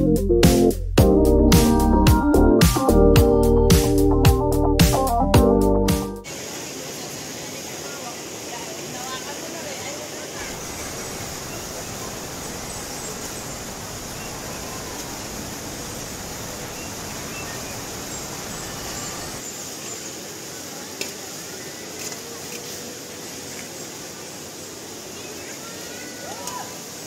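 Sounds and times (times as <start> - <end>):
rocky stream rushing: 6.2 - 27.0.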